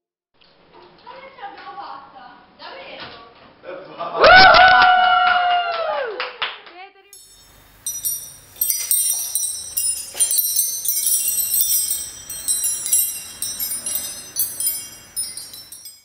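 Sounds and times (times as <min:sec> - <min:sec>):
high tinkling chimes: 0:07.2 - 0:16.0.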